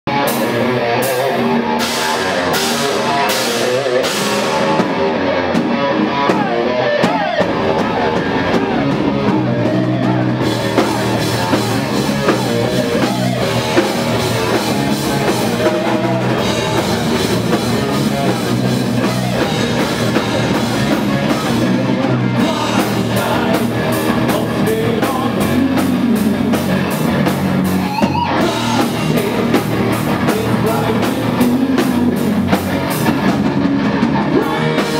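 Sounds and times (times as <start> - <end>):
bass guitar: 0.0 - 34.9
distorted electric guitars: 0.1 - 34.9
drum kit with crashing cymbals: 1.8 - 21.8
person singing: 6.1 - 32.6, 34.0 - 34.9.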